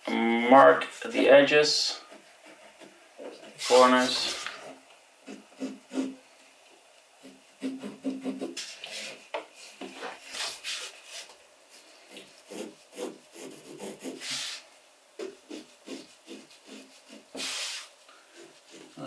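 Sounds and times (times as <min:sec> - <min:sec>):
pencil scratching on hardboard: 0:01.9 - 0:06.2, 0:07.2 - 0:09.2, 0:12.1 - 0:14.6, 0:15.2 - 0:19.0.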